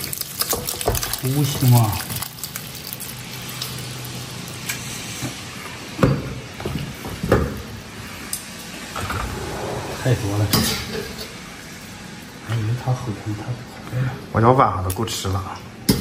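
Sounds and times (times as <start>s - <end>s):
food sizzling in a wok: 2.6s - 5.6s.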